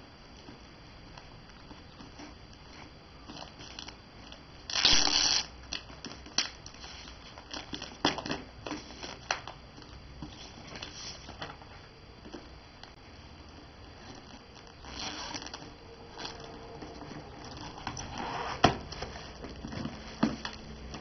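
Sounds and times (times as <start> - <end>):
plastic crinkling: 1.6 - 11.5
scissors cutting tape: 4.7 - 5.8
packing tape tearing: 4.7 - 9.5, 14.1 - 16.5.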